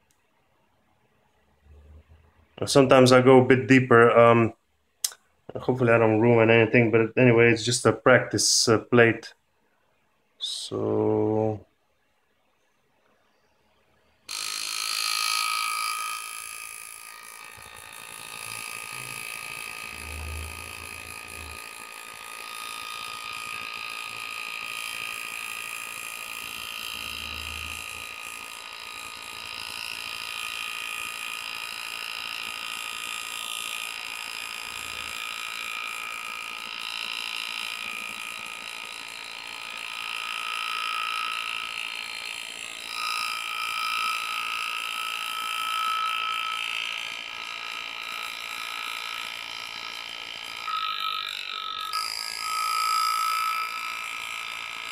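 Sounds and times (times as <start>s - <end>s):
pneumatic engraver buzzing: 14.3s - 54.9s.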